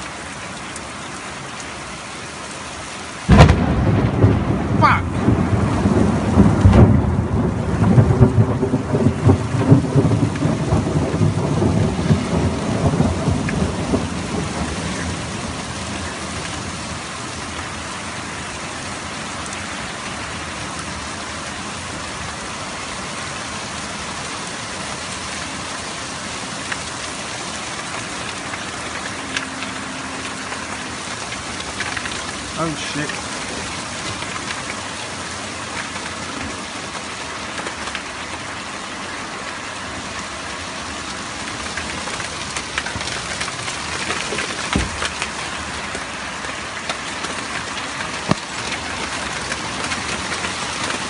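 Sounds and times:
rain falling on wet pavement: 0:00.0 - 0:51.0
thunder rumbling: 0:03.3 - 0:16.8.

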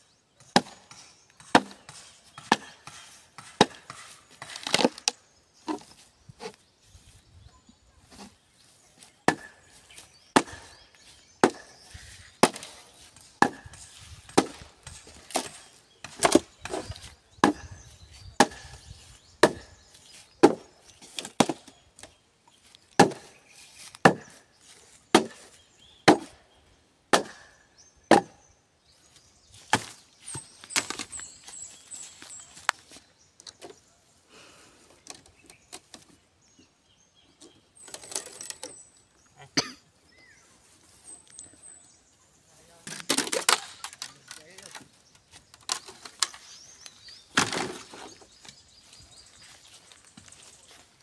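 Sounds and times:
blade chopping bamboo: 0:00.4 - 0:05.8, 0:09.2 - 0:17.7, 0:18.4 - 0:18.8, 0:19.4 - 0:19.7, 0:20.4 - 0:21.7, 0:23.0 - 0:23.3, 0:24.0 - 0:24.4, 0:25.1 - 0:26.4, 0:27.1 - 0:28.4, 0:47.4 - 0:48.2.

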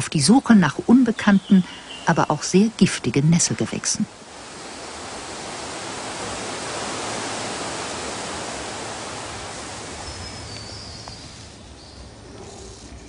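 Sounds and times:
waterfall rushing: 0:00.7 - 0:11.7.

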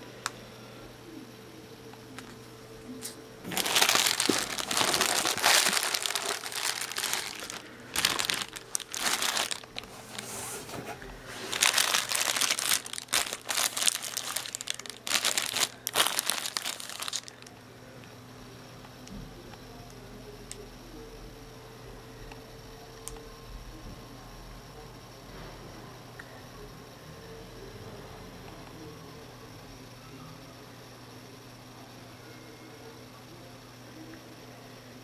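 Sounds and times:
plastic bag crinkling: 0:03.4 - 0:17.5.

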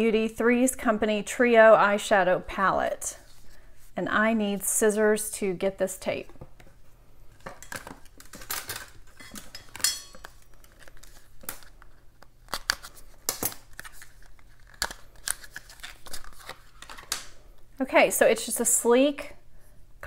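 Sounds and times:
packaging rustling: 0:07.3 - 0:17.4.

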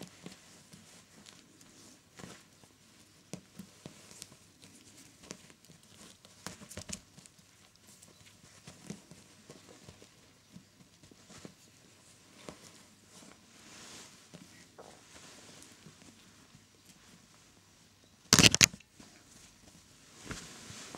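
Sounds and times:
kittens tapping and rustling: 0:00.0 - 0:13.4.

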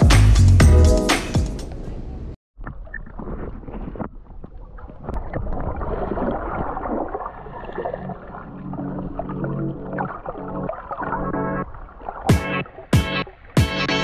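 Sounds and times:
music: 0:00.0 - 0:01.7, 0:12.3 - 0:14.0.

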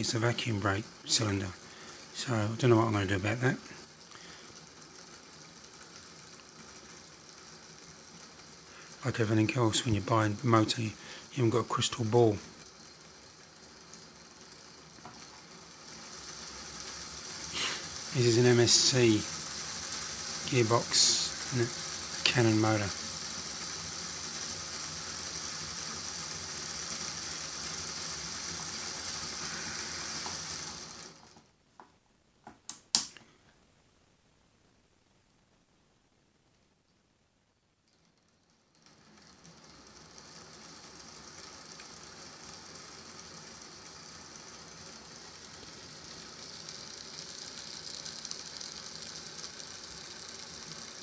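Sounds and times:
model locomotive motor whirring: 0:00.0 - 0:31.5, 0:37.8 - 0:51.0
sharp clicks: 0:32.5 - 0:33.3.

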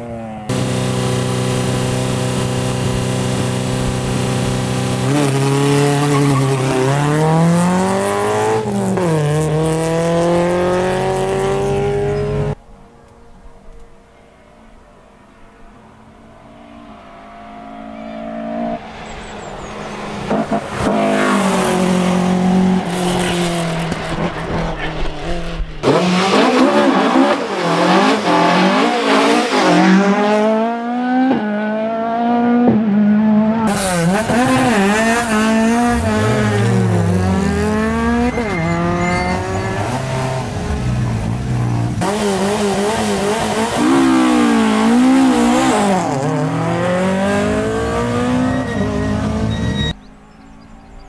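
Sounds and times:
rally car engines revving: 0:00.0 - 0:12.6, 0:16.5 - 0:50.0.

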